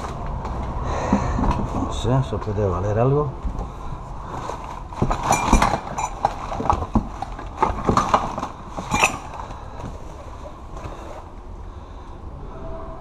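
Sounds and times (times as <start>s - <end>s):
glassware knocking and clinking: 5.1s - 6.4s, 8.8s - 9.3s.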